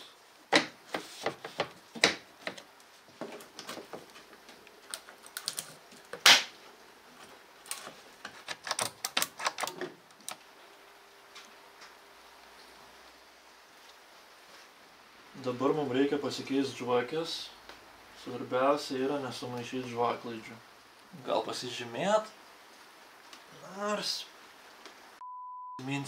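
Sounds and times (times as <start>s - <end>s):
hand tools clicking and knocking: 7.7s - 10.0s.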